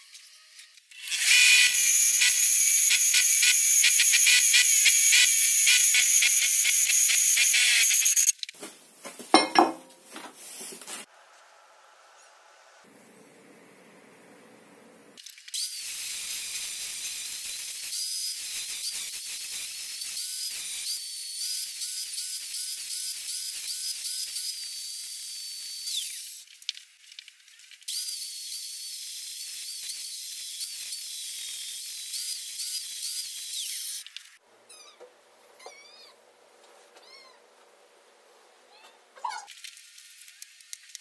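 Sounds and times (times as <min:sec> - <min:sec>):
angle grinder grinding metal: 0:00.3 - 0:08.3.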